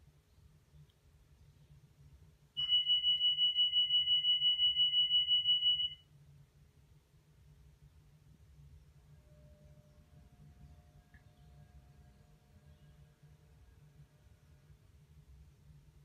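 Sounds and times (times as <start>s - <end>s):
train door warning alarm: 2.6s - 6.0s.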